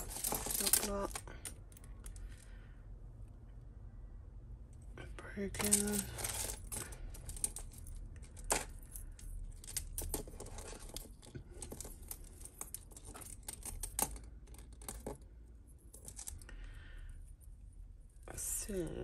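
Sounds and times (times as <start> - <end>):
jewellery clinking and rattling: 0.0 - 2.5, 5.3 - 16.6.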